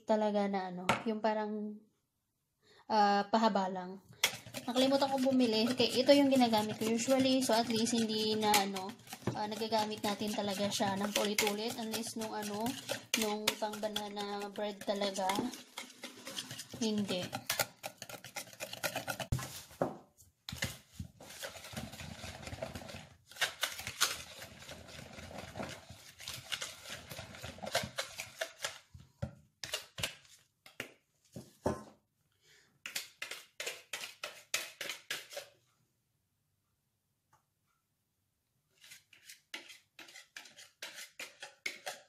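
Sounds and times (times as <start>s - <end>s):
whisk clicking against plastic bowl: 4.2s - 19.3s.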